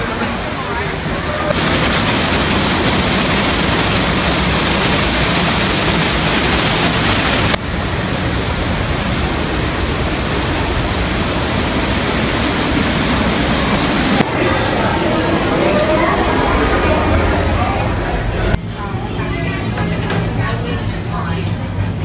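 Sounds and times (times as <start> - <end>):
waterfall rushing: 0.0 - 17.6.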